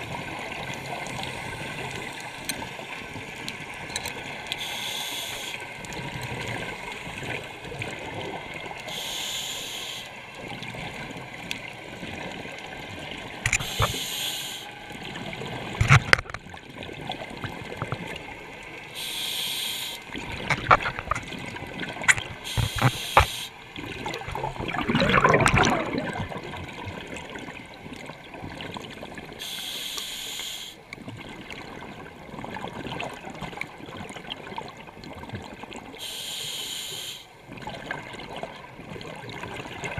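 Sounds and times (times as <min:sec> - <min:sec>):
scuba regulator inhale hiss: 0:04.6 - 0:05.6, 0:08.9 - 0:10.1, 0:13.6 - 0:14.7, 0:18.9 - 0:20.0, 0:22.4 - 0:23.6, 0:29.4 - 0:30.8, 0:36.0 - 0:37.3
bubbling exhalations: 0:21.9 - 0:26.6.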